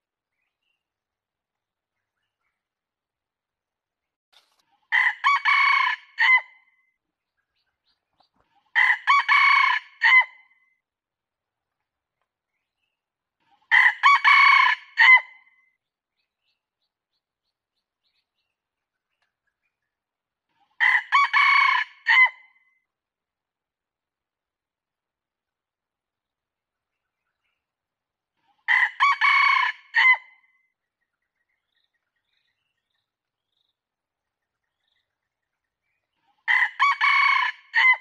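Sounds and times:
rooster crowing: 5.0 - 6.5, 8.8 - 10.3, 13.7 - 15.2, 20.8 - 22.3, 28.7 - 30.2, 36.5 - 38.0.

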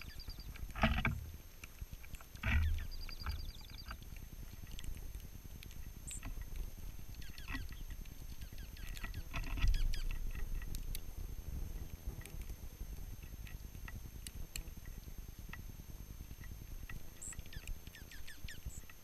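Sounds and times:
bird trill: 0.0 - 0.5, 2.6 - 4.0, 7.2 - 10.2, 17.2 - 18.8
birds pecking and rustling: 0.0 - 19.0.

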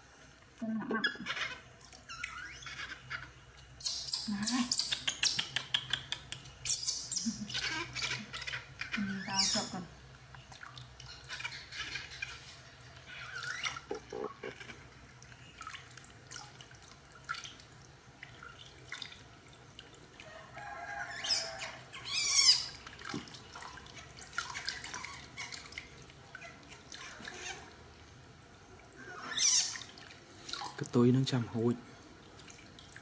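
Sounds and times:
baby monkey squealing: 1.0 - 5.4, 6.6 - 9.8, 11.1 - 12.5, 13.1 - 14.7, 21.1 - 22.8, 24.0 - 25.7, 26.4 - 27.7, 29.0 - 30.8
water splashing and dripping: 9.6 - 33.0.

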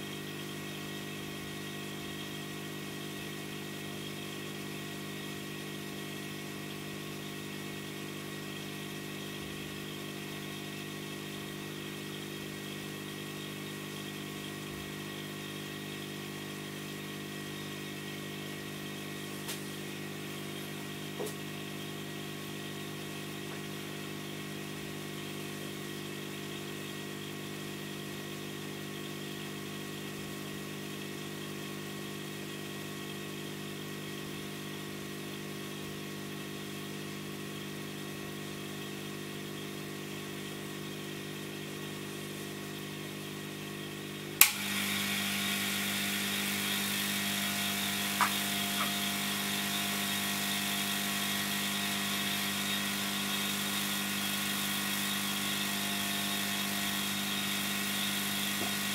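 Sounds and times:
hot-air blower humming: 12.4 - 26.6, 43.8 - 58.9
sharp click: 44.4 - 44.6.

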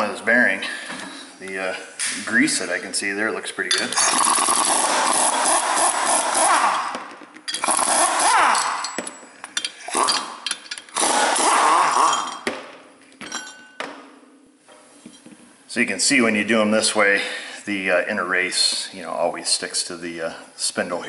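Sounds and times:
air impact wrench hammering: 4.0 - 9.2, 9.9 - 12.1.

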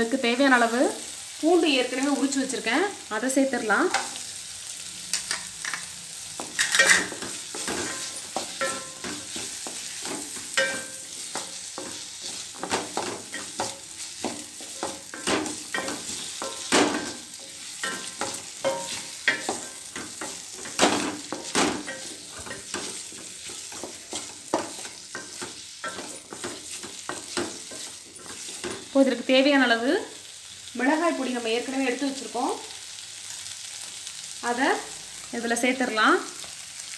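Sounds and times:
frying sizzle: 0.0 - 36.9
spatula scraping metal pan: 6.5 - 28.9.

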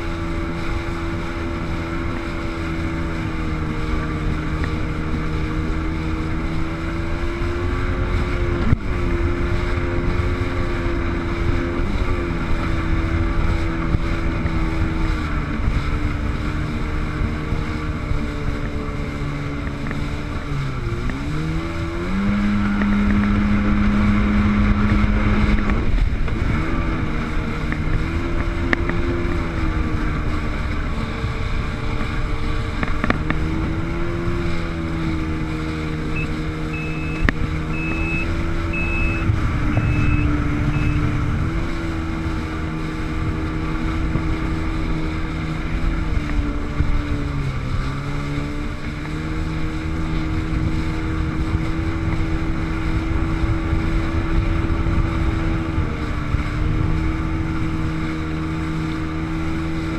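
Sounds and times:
jet ski engine running: 0.0 - 59.9.

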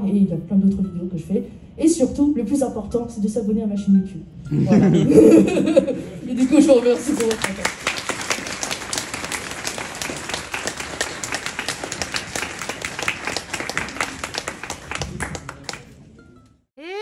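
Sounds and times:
audience applauding: 6.3 - 16.0.

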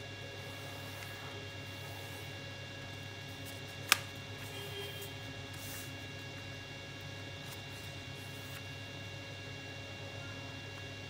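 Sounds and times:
steady electrical hum: 0.0 - 11.0
faint paper rustling: 3.2 - 6.4, 7.4 - 8.8.

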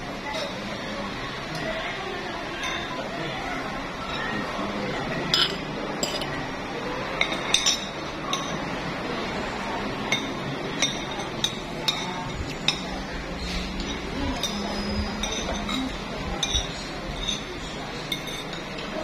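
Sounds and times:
steady background hum: 0.0 - 19.0
cutlery clinking on a plate: 5.2 - 6.4, 7.1 - 8.7, 10.0 - 19.0.

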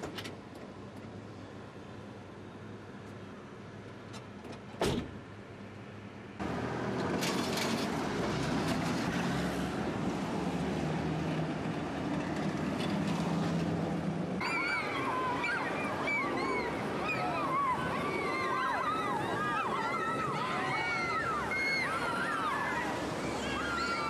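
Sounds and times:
cars passing on street: 0.0 - 24.0
low engine hum: 5.6 - 24.0.

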